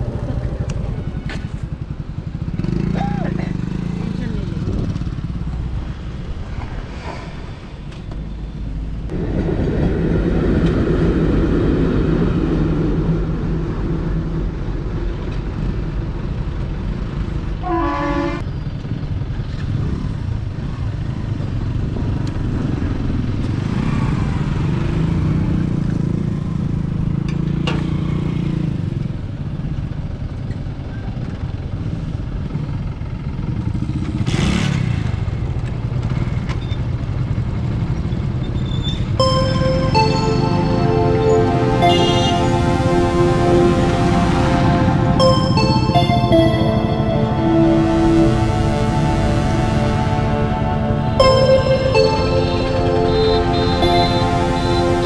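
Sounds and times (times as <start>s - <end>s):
vehicle engine noise: 0.0s - 17.6s.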